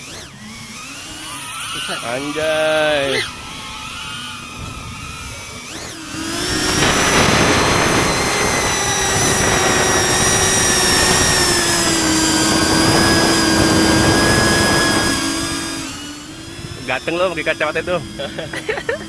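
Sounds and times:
drone motors whining: 0.0 - 19.0
rushing airflow: 6.1 - 18.5.

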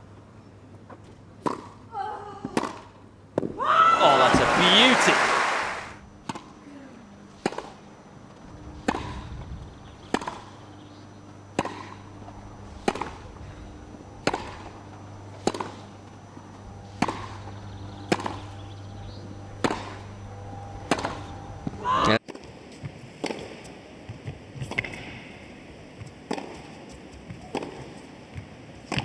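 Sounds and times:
tennis racquets hitting ball: 1.4 - 1.8.

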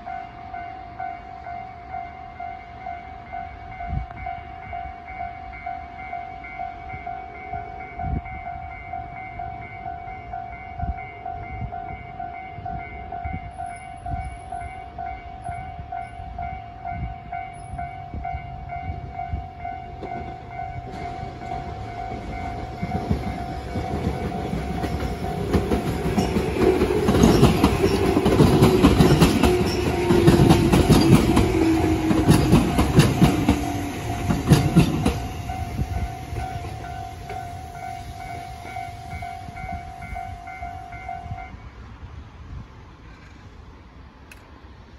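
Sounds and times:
level-crossing warning bell: 0.0 - 41.8
train whine: 0.0 - 44.9
train wheels clattering: 19.6 - 40.4.

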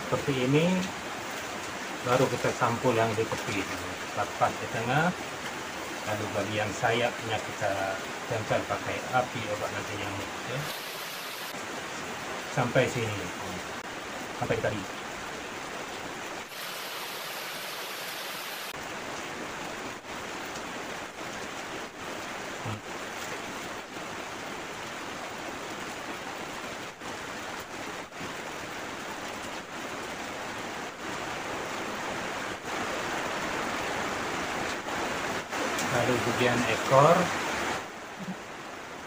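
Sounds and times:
steady rushing hiss: 0.0 - 15.3, 16.2 - 18.8.

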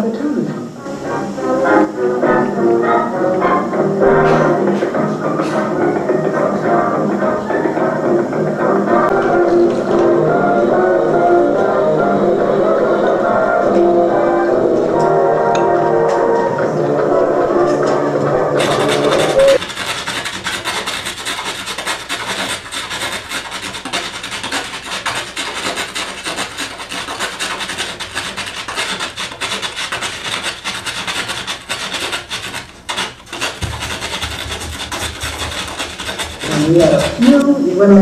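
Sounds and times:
old film soundtrack music: 0.5 - 19.6.

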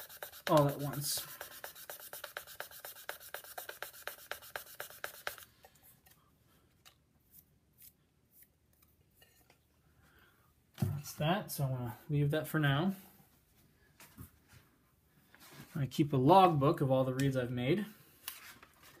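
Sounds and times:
reed rubbing on sandpaper: 0.0 - 5.5.

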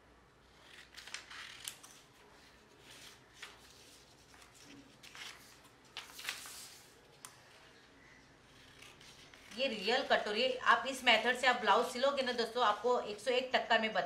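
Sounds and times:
paper rustling: 0.6 - 7.7.

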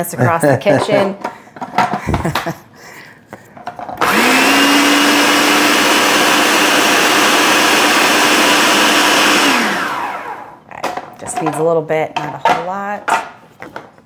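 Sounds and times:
food processor whining: 3.9 - 10.6.

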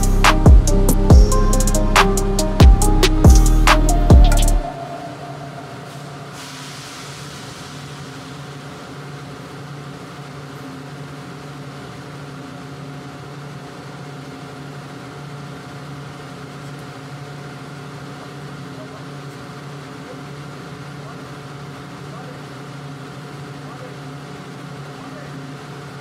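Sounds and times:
music track: 0.0 - 6.8
machinery hum with low tones: 0.0 - 26.0.

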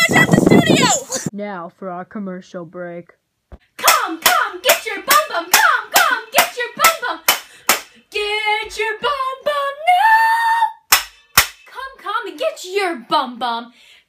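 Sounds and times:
girl singing: 0.0 - 1.3, 3.7 - 10.9, 11.7 - 13.8
girl clapping: 3.8 - 7.9.

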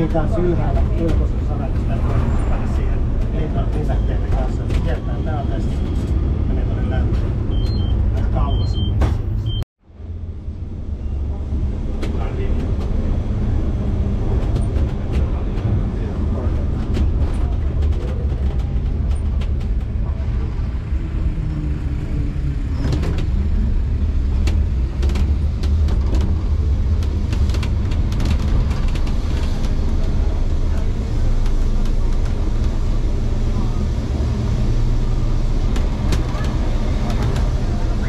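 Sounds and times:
tram clicks and rattles: 0.0 - 9.4, 11.2 - 38.0
tram rumbling on rails: 0.0 - 38.0.

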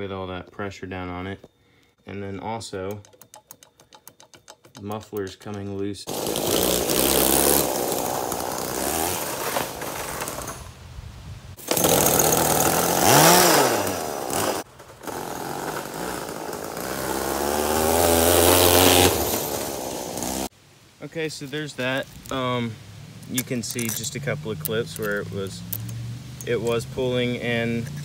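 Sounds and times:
chainsaw engine revving: 6.1 - 10.7, 11.6 - 20.5.

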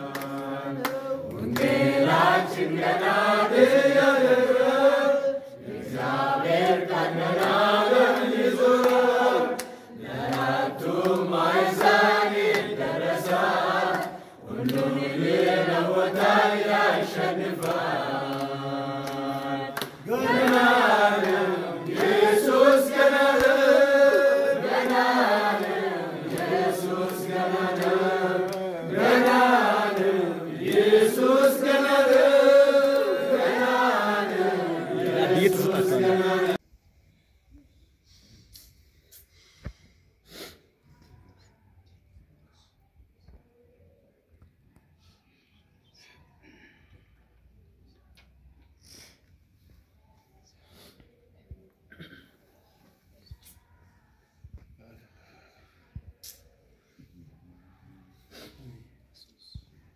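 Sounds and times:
hand clapping: 0.0 - 2.4, 7.0 - 36.6
group singing a hymn: 0.0 - 36.6.

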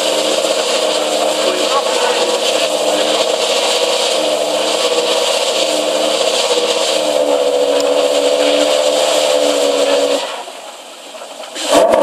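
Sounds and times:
sports car engine idling: 0.0 - 12.0.

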